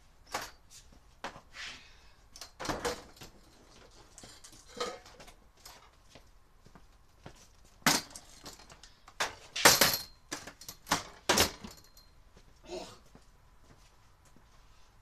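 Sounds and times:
hard objects clinking and clattering: 2.5 - 5.9.

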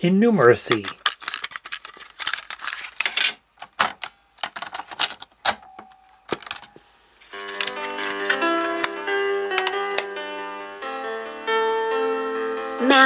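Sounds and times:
plastic cassette clicks and clatter: 0.6 - 10.1
cassette door and keys snapping: 0.7 - 10.1.

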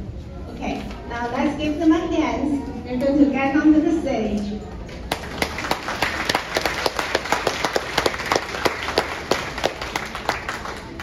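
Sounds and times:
audience applauding: 5.1 - 11.0.

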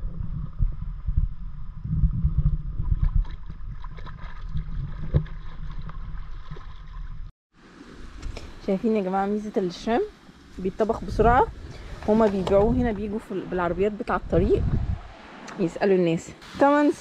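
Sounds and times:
wind on microphone: 0.0 - 8.6, 9.8 - 15.8
water lapping and splashing: 2.2 - 8.8.

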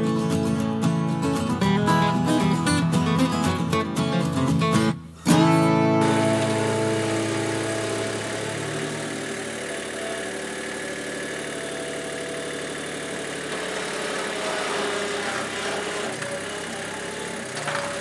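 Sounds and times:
skid steer loader engine running: 5.6 - 18.0.

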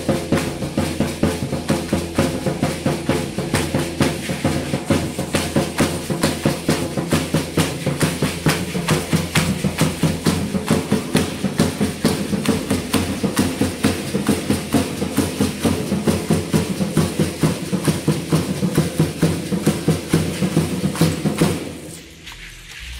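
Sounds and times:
drum beating quick rhythm: 0.0 - 22.9.

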